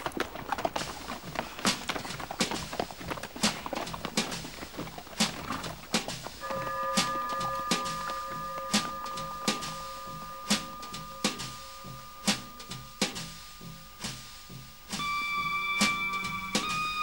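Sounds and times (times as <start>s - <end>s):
drum hits: 3.3s - 17.0s
sustained tones: 6.4s - 17.0s.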